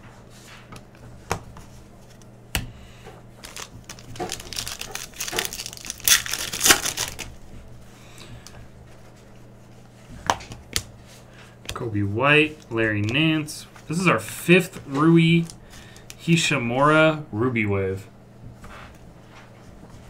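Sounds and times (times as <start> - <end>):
plastic wrapper tearing and crinkling: 3.4 - 7.4.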